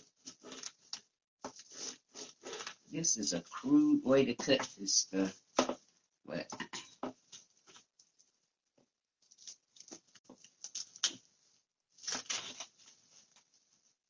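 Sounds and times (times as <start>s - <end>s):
cling wrap crinkling: 9.2s - 14.0s.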